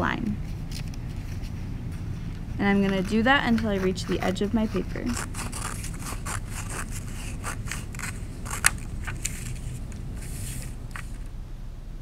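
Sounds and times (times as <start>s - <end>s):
paper rustling: 2.4s - 11.3s
scissors cutting paper: 2.7s - 11.2s.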